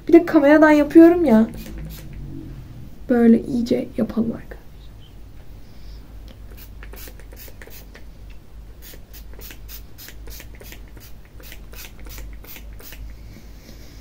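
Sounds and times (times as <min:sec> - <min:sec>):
spray bottle hisses: 0:01.5 - 0:02.2, 0:06.5 - 0:08.0, 0:08.8 - 0:13.1.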